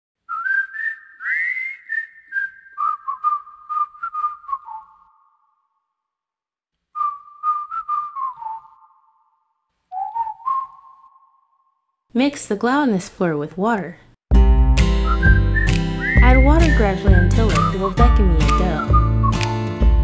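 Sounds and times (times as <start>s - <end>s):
whistled melody: 0.3s - 5.7s, 7.0s - 11.9s, 14.8s - 19.8s.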